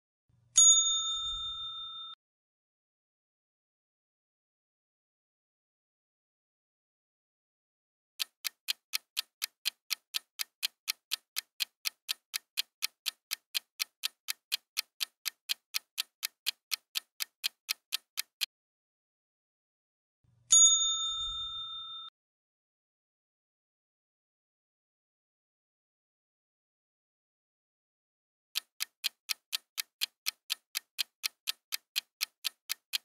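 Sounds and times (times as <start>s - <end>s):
clock ticking: 8.2s - 18.5s, 28.6s - 33.0s
bright ding: 20.5s - 22.1s.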